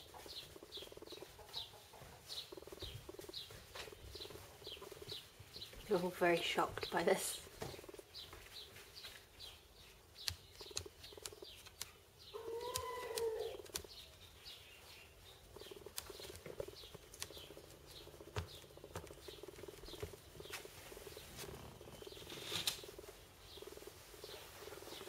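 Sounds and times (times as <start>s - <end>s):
birds chirping: 0.0s - 25.0s
sharp clicks: 10.2s - 12.0s, 12.6s - 14.0s, 15.6s - 20.2s
rising and falling bird call: 12.3s - 14.0s.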